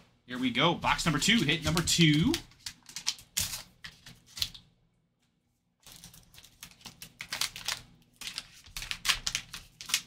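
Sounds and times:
plastic pack crinkling: 1.2s - 4.6s, 5.8s - 10.0s.

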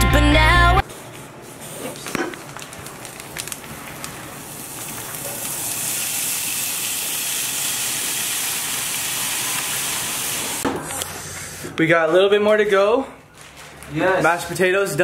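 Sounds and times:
bacon sizzling in frying pan: 3.4s - 10.6s.

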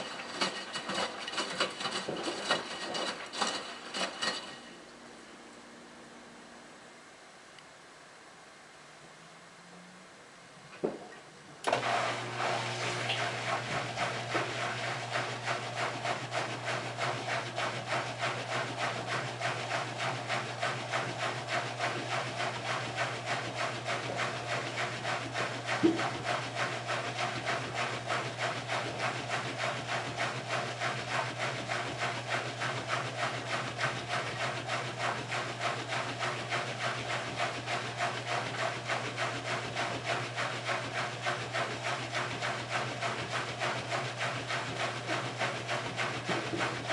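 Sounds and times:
rasping swish of drum turning: 0.0s - 4.8s
washing machine humming: 0.0s - 6.7s, 11.6s - 46.9s.

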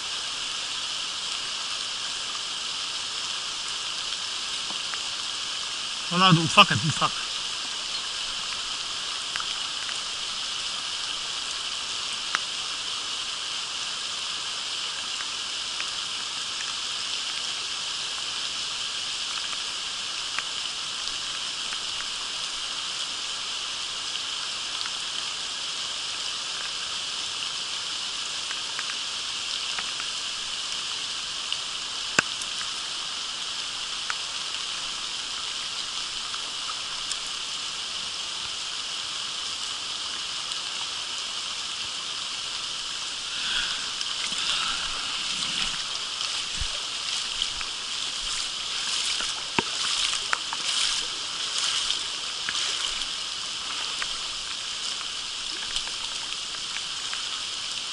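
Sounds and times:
creek running over stones: 0.0s - 57.9s
rain hissing: 0.0s - 57.9s
raindrops ticking close by: 3.1s - 14.0s, 19.0s - 24.0s, 28.3s - 37.7s, 41.4s - 57.9s.

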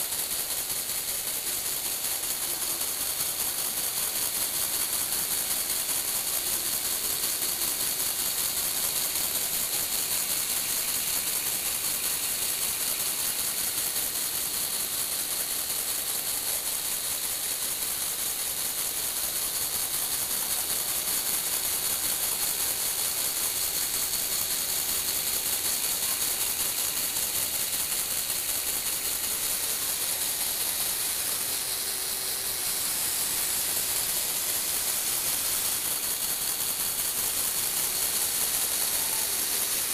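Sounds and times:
fast fine ticking: 0.0s - 39.9s
electric motors and gears whirring: 18.0s - 39.9s.

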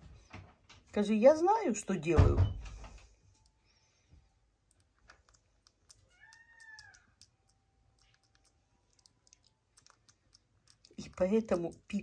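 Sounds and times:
soft grooming clicks: 4.6s - 12.0s.

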